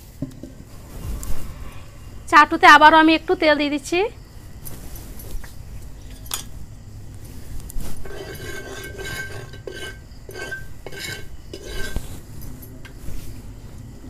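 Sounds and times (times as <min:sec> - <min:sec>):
light metal clink: 0:06.1 - 0:06.6
metal spatula scraping griddle: 0:07.8 - 0:12.3.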